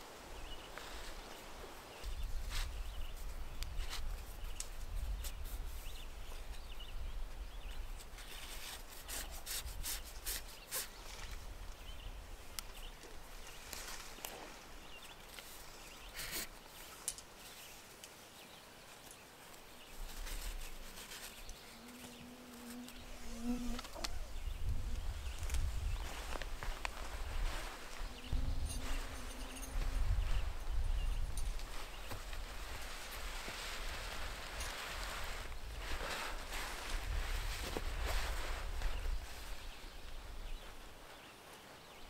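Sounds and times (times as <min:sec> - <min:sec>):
cord rubbing and rustling: 0:18.9 - 0:39.9.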